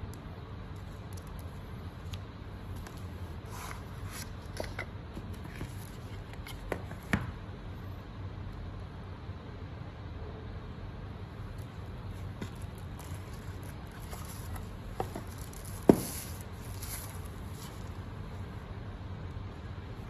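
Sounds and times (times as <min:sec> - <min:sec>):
steady low hum: 0:00.0 - 0:20.0
paper and cardboard rustling: 0:12.2 - 0:18.0.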